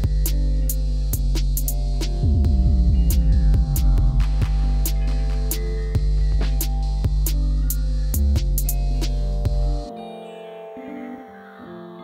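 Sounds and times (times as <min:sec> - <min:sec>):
music with deep bass: 0:00.0 - 0:10.0
sharp percussion hits: 0:01.2 - 0:09.7.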